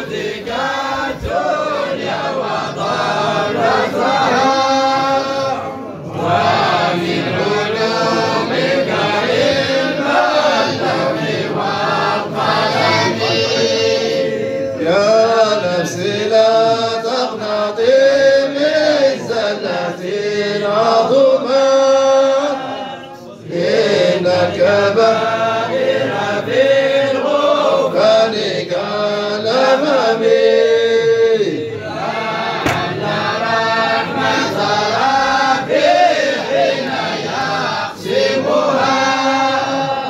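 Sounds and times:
chanted vocal song: 0.0 - 40.0.

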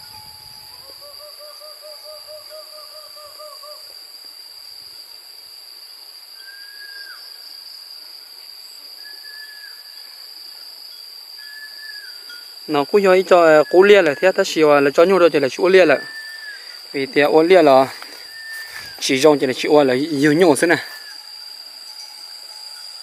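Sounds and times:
insects droning: 0.0 - 23.0
bird trilled call: 15.8 - 16.8, 18.2 - 19.0.

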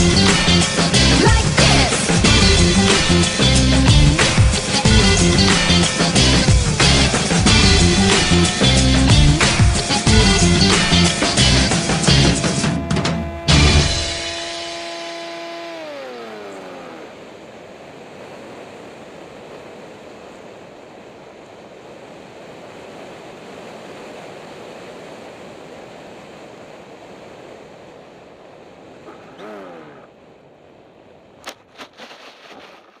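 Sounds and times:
electric motor whine: 8.5 - 17.5.

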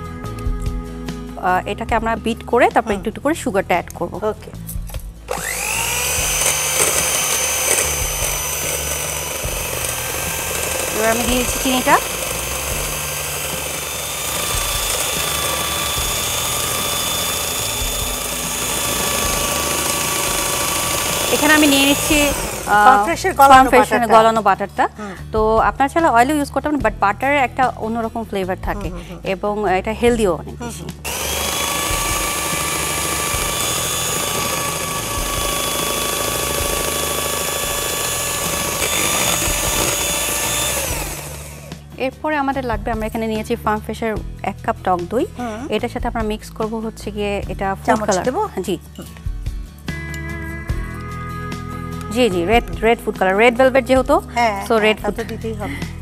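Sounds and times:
beaters whisking in metal bowl: 5.3 - 23.1, 31.1 - 41.7
electric hand mixer whining: 5.3 - 24.3, 31.0 - 41.8.

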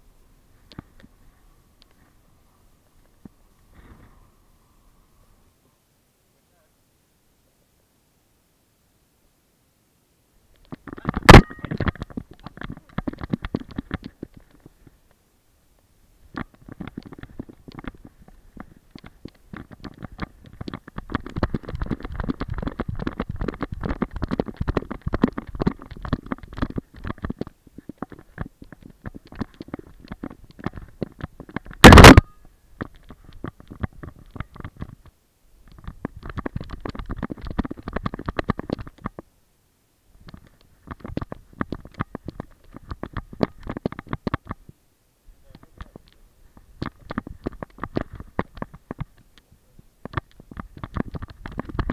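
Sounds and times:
camera handling rubbing and crackling: 10.6 - 15.0, 16.3 - 39.2, 40.2 - 44.7, 45.5 - 49.4, 50.0 - 51.9.

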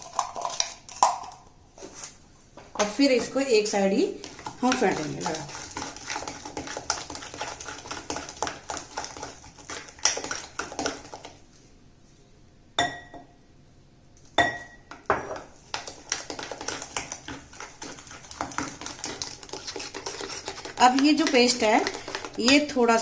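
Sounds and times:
spoon beating batter in glass bowl: 2.8 - 11.4, 14.4 - 23.0
metal striking bowl ringing clink: 12.8 - 13.2, 14.4 - 14.8.

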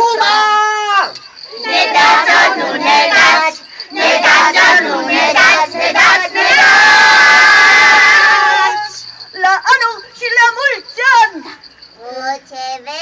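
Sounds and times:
group of voices calling out: 0.0 - 9.1.

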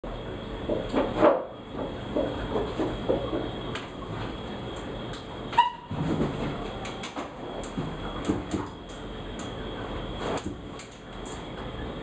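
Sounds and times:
short high squeak: 5.5 - 5.9.

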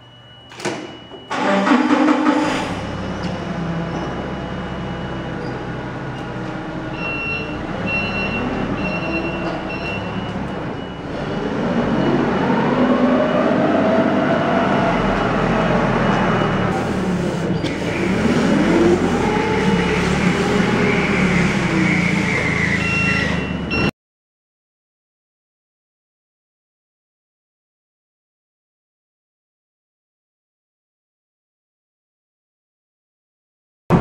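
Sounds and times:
forklift engine running: 1.0 - 23.9.

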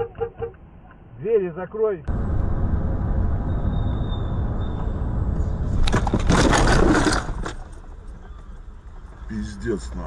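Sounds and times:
car road and engine rumble: 0.0 - 10.0
loud scraping car crash: 5.7 - 7.8.

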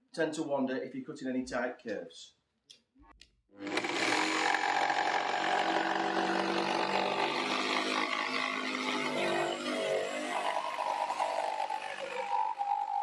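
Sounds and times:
jigsaw cutting chipboard: 3.6 - 13.0.

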